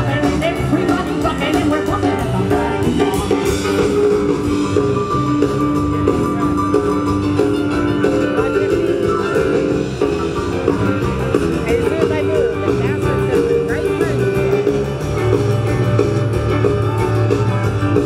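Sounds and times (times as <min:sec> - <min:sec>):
person singing: 0:00.0 - 0:03.9
drums: 0:00.0 - 0:18.0
electric guitar: 0:00.0 - 0:18.0
keyboard: 0:00.0 - 0:18.0.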